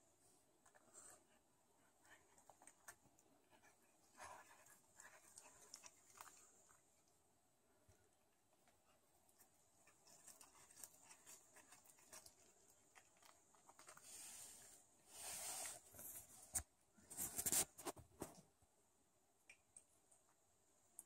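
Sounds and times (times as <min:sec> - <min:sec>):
cat chewing: 0:00.7 - 0:07.2, 0:08.6 - 0:14.4.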